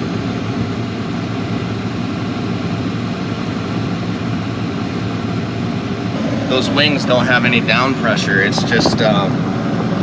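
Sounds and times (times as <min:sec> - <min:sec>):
tractor diesel engine drone: 0:00.0 - 0:10.0.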